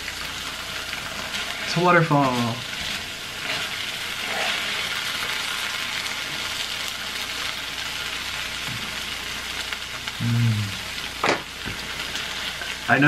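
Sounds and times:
cheese sizzling on a griddle: 0.0s - 13.0s.

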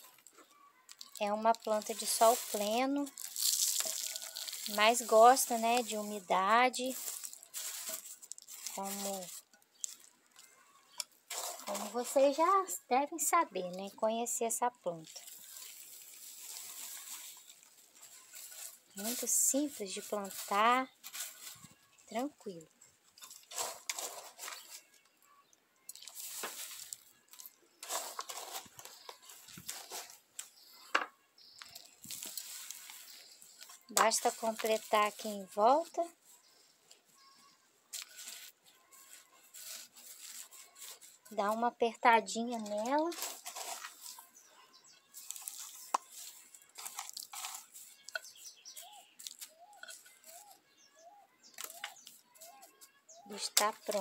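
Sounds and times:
soil rustling and crunching: 0.0s - 25.0s, 25.9s - 54.0s
bird calling: 48.1s - 53.4s.

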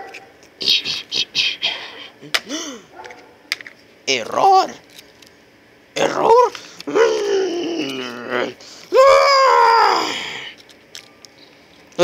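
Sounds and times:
person wailing: 6.0s - 10.6s.

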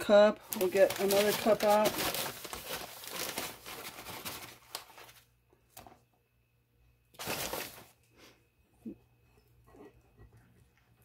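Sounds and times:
plastic bag rustling: 0.0s - 6.0s, 7.1s - 8.0s.

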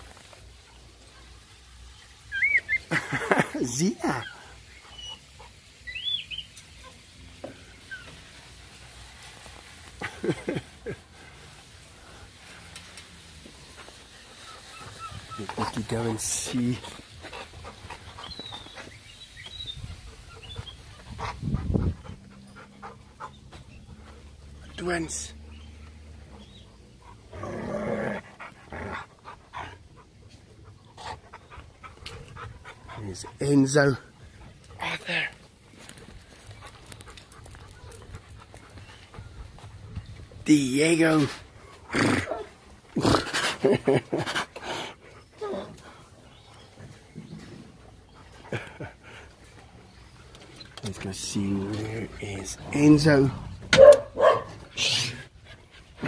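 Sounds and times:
low steady background noise: 0.0s - 56.0s
dog panting: 14.2s - 24.6s, 28.2s - 40.1s, 47.8s - 50.4s, 51.0s - 56.0s.

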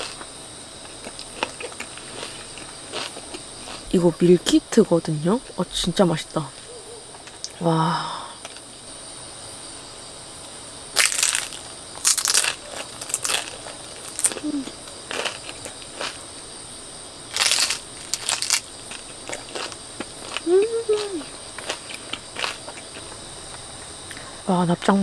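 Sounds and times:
crunchy chewing: 0.0s - 4.2s, 10.4s - 24.3s
crickets trilling: 0.0s - 25.0s.

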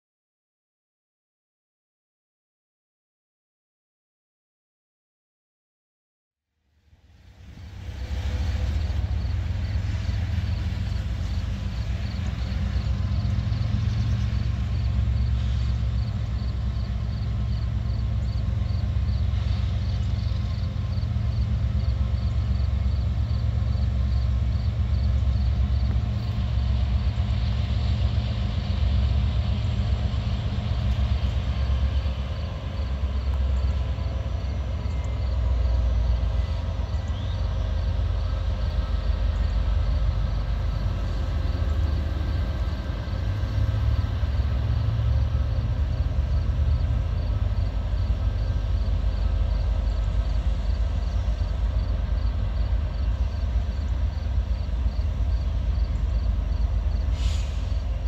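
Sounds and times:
faint train engine drone: 6.4s - 58.0s
freight train rumble: 6.5s - 58.0s.

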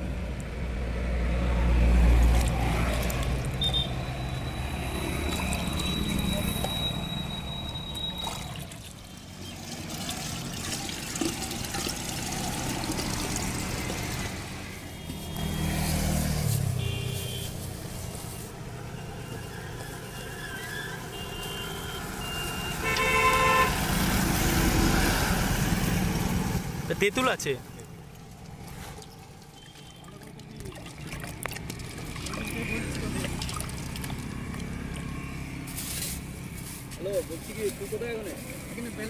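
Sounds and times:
street traffic: 0.0s - 39.0s
vehicle horns tooting: 3.6s - 8.6s, 16.6s - 17.6s, 18.9s - 23.9s.

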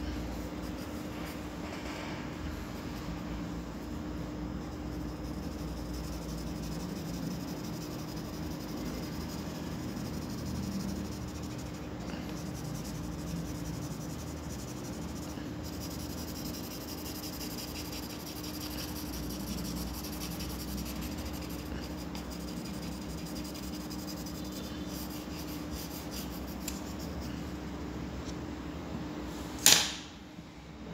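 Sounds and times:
steady low hum: 0.0s - 30.9s
pencil scratching on paper: 4.2s - 27.5s.

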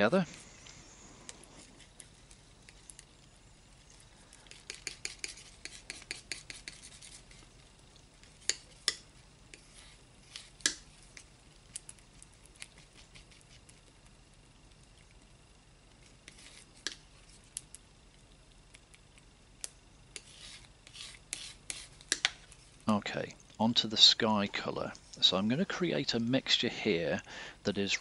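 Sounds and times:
palette knife scraping paint: 4.5s - 7.5s, 16.2s - 17.4s, 20.1s - 22.7s.

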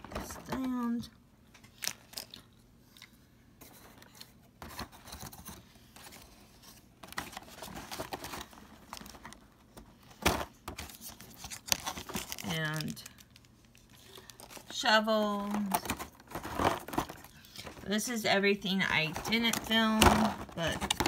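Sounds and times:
paper rustling: 15.4s - 18.0s.

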